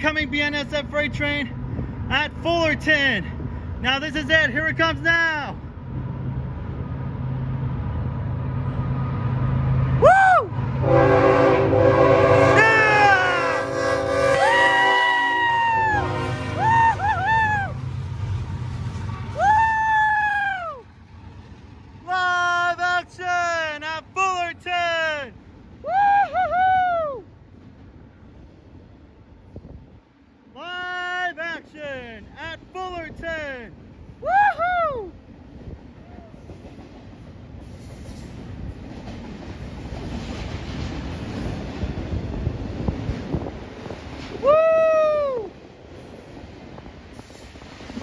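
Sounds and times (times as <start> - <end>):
diesel engines rumbling: 0.0 - 29.4
locomotive air horn blasts: 10.8 - 17.0.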